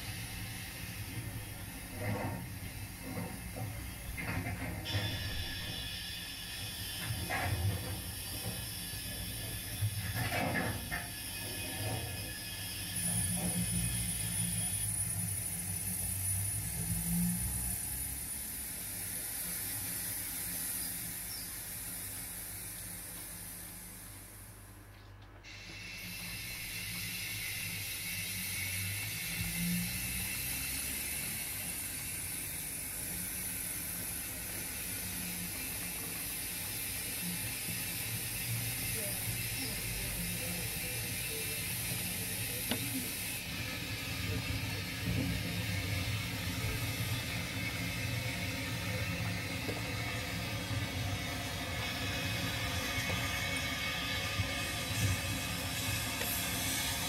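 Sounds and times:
model train whirring and clicking: 0.0s - 57.0s
low rumble from track: 38.9s - 57.0s.

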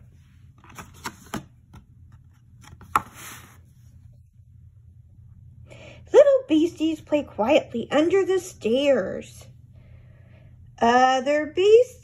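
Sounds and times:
page sliding rustle: 2.6s - 3.7s.

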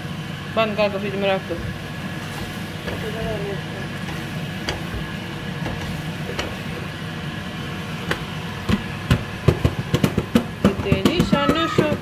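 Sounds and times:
steady low hum: 0.0s - 12.0s
wooden spoon stirring in a pan: 1.5s - 12.0s
spoon knocking on pan: 8.0s - 12.0s.

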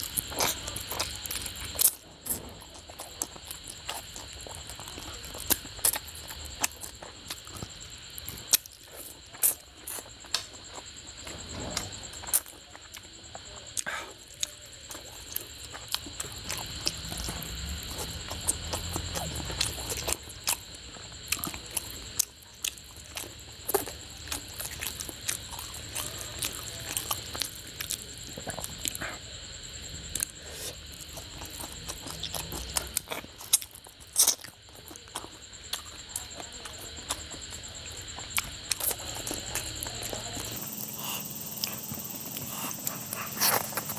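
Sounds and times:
wet chewing: 0.0s - 43.9s.

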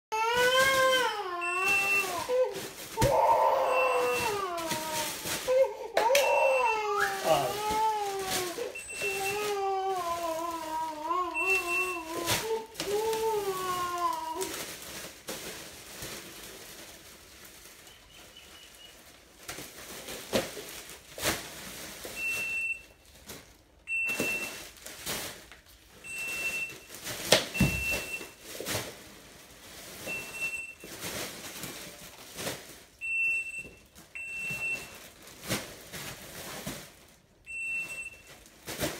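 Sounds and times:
plastic satchels rustling: 0.2s - 38.9s
parcel scanner beeps: 1.4s - 2.2s, 3.7s - 4.3s, 8.8s - 9.4s, 11.4s - 12.1s, 27.6s - 28.3s, 37.5s - 38.3s.

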